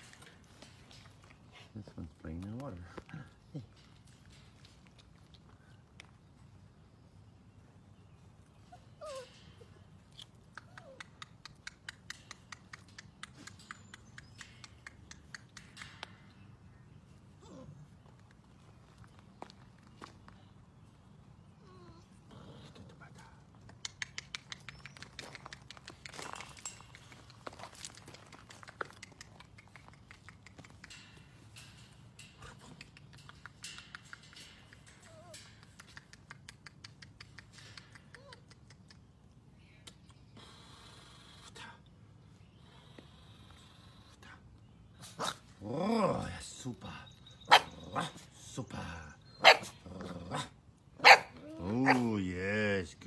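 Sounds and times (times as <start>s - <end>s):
puppy claws clicking on wire mesh: 0.0s - 6.0s, 9.1s - 16.6s, 23.1s - 39.3s
puppy whining: 8.6s - 9.9s, 10.5s - 12.4s, 17.4s - 18.0s, 21.6s - 22.9s, 34.8s - 35.8s, 37.9s - 38.9s.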